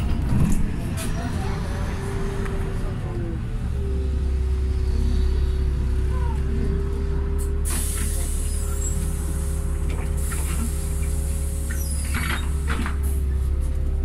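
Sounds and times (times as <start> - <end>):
bus engine and road noise: 0.0 - 14.0.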